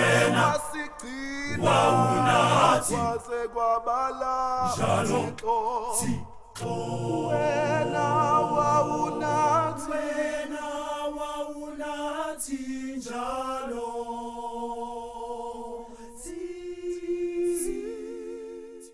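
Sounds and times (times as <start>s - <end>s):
male vocal group singing a cappella: 0.0s - 18.9s.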